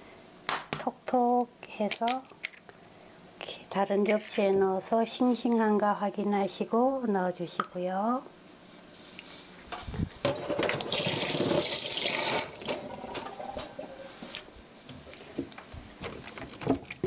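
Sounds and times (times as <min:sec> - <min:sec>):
kitchen tap running: 0:10.6 - 0:13.6.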